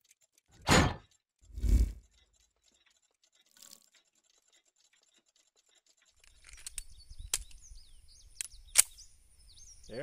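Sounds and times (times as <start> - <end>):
birds chirping faintly: 1.0 - 10.0
pistol metallic clicks: 8.3 - 9.0.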